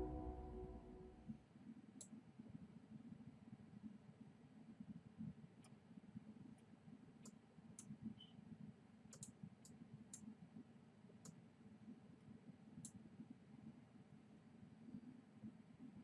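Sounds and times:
low room hum: 0.0 - 1.3
computer mouse clicks: 9.1 - 10.3.

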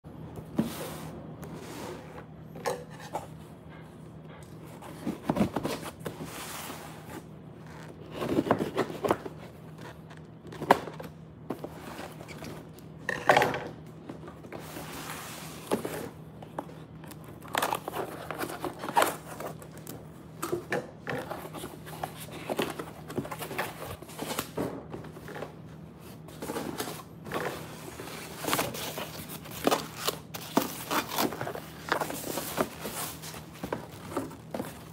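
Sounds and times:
cardboard scraping and rustling: 4.7 - 12.8, 14.0 - 19.9, 21.2 - 34.9.

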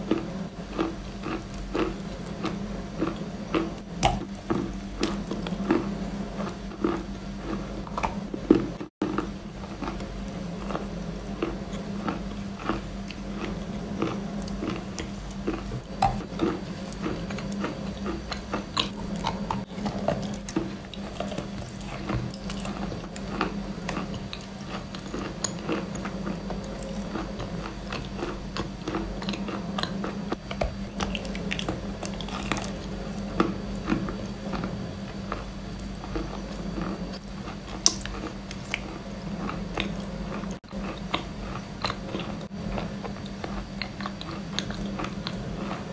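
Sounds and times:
cookie crunching: 0.0 - 45.9
low steady hum: 0.0 - 45.9
wet mouth sounds: 11.5 - 32.8.

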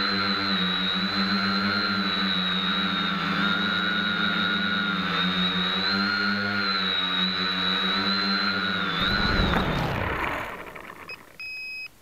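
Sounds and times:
quadcopter motors whining: 0.0 - 11.9
short electronic beeps: 11.1 - 11.9.

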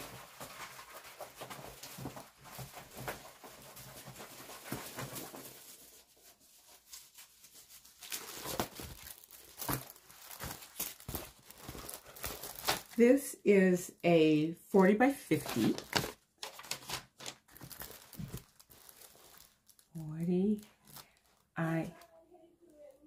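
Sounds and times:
plastic packaging crinkling: 0.0 - 13.0, 15.3 - 23.0.

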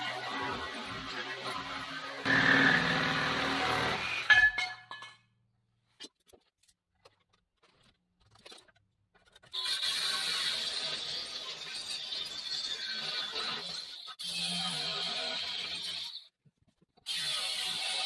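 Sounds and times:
angle grinder cutting steel: 0.0 - 4.3
reciprocating saw cutting steel: 0.0 - 4.3.

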